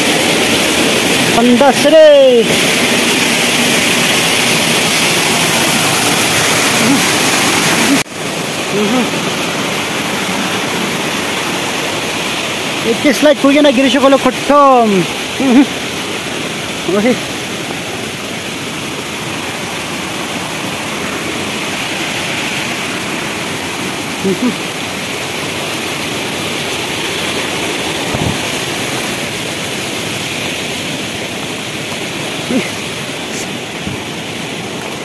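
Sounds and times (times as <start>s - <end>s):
stream rushing over rocks: 0.0s - 35.0s.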